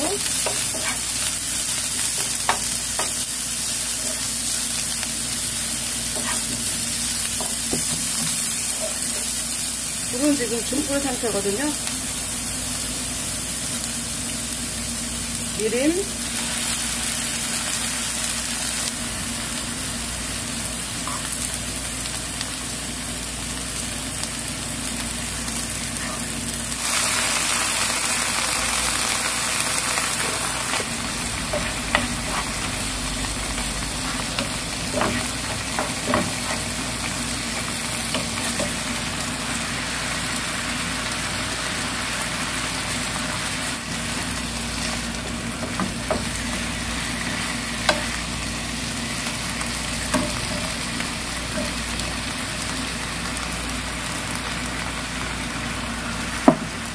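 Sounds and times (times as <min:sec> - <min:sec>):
sauce sizzling in frying pan: 0:00.0 - 0:56.9
spatula stirring: 0:00.3 - 0:01.2.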